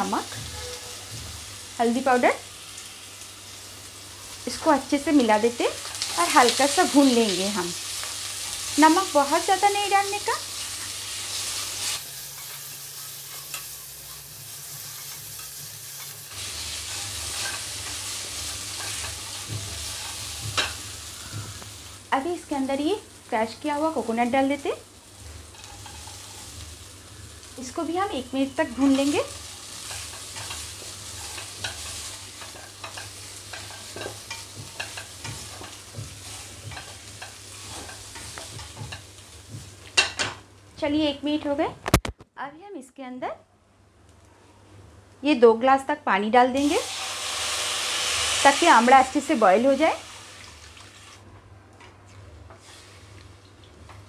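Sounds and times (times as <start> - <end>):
fruit sizzling in hot oil: 0.0 - 41.6, 46.5 - 51.2, 52.5 - 54.0
spatula scraping a pan: 10.6 - 21.6, 25.5 - 26.6, 29.7 - 39.1.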